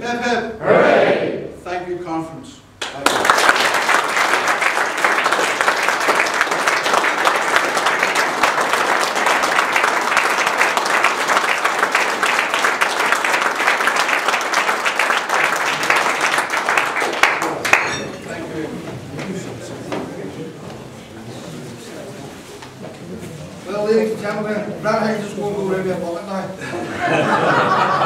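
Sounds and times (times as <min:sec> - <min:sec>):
audience applause: 0:02.8 - 0:18.0.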